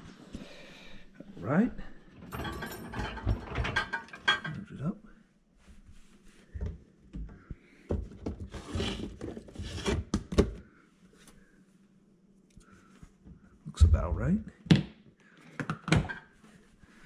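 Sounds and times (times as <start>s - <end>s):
knocks and thumps of handling: 6.6s - 10.6s.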